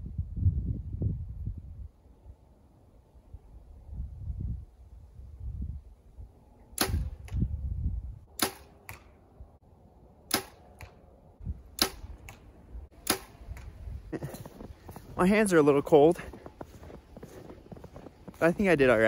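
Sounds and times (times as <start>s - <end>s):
arrow striking target: 6.8s - 7.5s, 8.3s - 9.2s, 10.3s - 11.0s, 11.7s - 13.8s.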